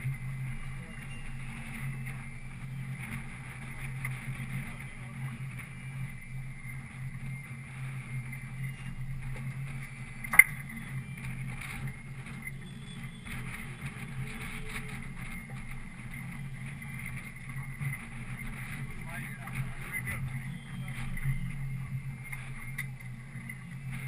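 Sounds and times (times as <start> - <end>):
boat engine running: 0.0 - 24.0
sharp click: 10.3 - 10.6.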